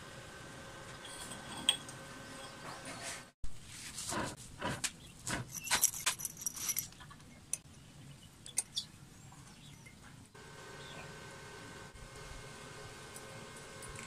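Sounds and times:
steel pieces clinking: 5.5 - 7.0.

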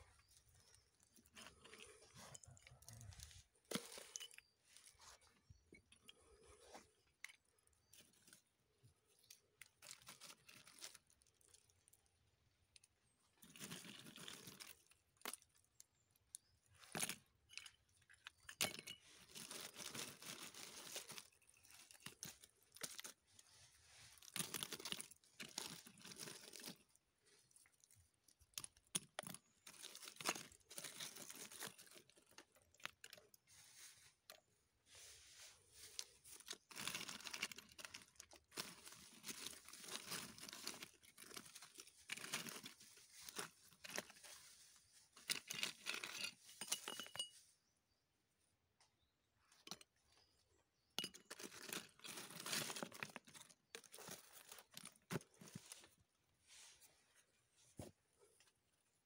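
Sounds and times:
hands rummaging through dry leaves: 0.1 - 5.6, 9.6 - 11.4, 18.6 - 26.8, 29.3 - 47.2, 51.2 - 56.0.

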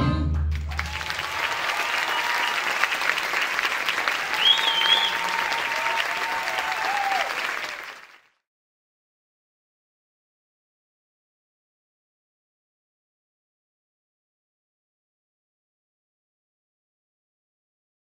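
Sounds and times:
swing music: 0.0 - 1.1
audience applauding and cheering: 0.3 - 8.4
whistle: 4.3 - 5.5.

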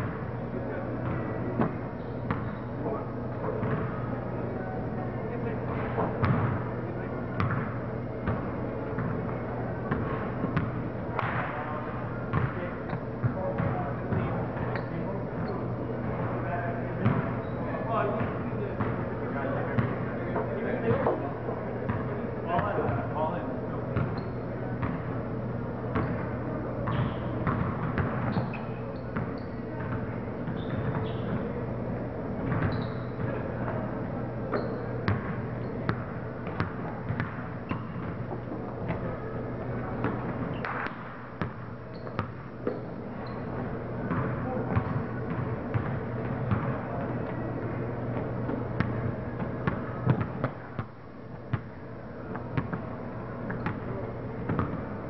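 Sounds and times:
steady low hum: 0.0 - 55.0
sneaker squeaks: 1.0 - 4.1, 11.6 - 16.2, 17.0 - 18.3, 24.0 - 25.0, 26.0 - 31.6, 32.4 - 33.5, 34.4 - 47.4, 53.5 - 53.9
basketball bouncing on wooden floor: 3.6 - 3.9, 12.3 - 12.6, 26.9 - 28.5, 54.5 - 54.8.

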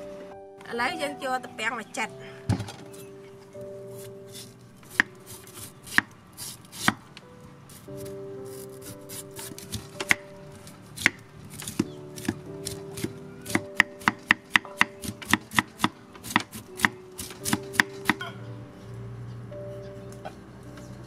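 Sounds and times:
knife slicing bamboo shoot: 4.0 - 7.0, 11.0 - 14.2, 15.0 - 18.2.

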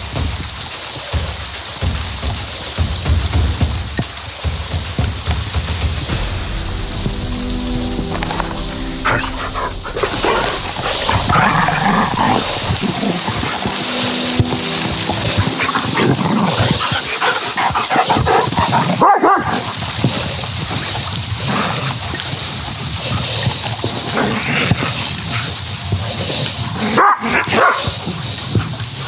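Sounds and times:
dogs barking and yipping: 9.0 - 19.9, 26.8 - 28.7.

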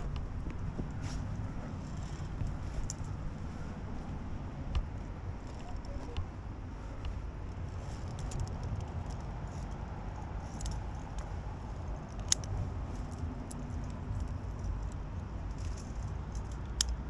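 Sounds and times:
low microphone rumble: 0.0 - 16.4
metallic clinks of climbing gear: 1.0 - 3.8, 7.5 - 17.0.

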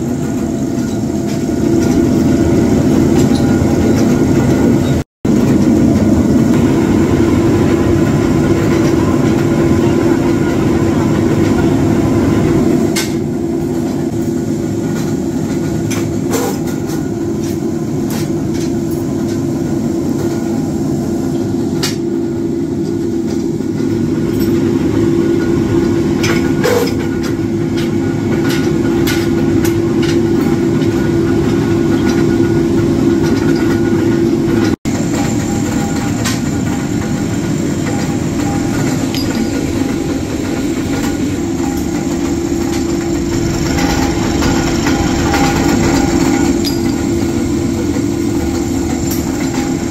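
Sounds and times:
sharp metallic clanks: 33.2 - 49.9
power press mechanical drone: 33.5 - 49.9.

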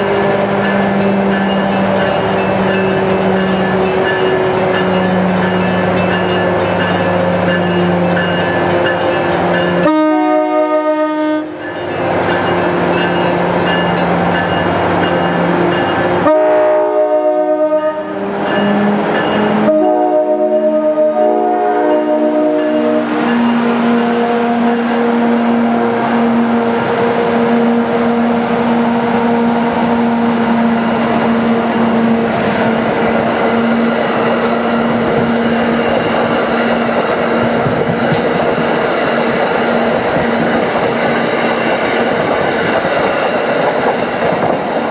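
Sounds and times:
train air horn blasts: 9.8 - 11.6, 16.2 - 18.3, 19.5 - 26.7.

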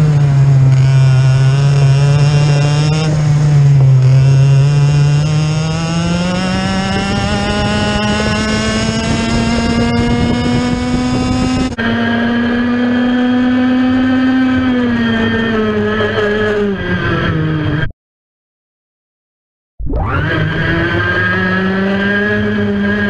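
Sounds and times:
kart engine at high revs: 0.0 - 17.9, 19.9 - 23.0.

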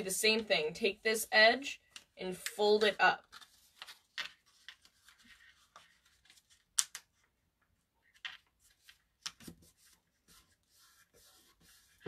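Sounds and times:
paper crackling: 2.8 - 6.8
paper rustling and crinkling: 2.8 - 6.8.

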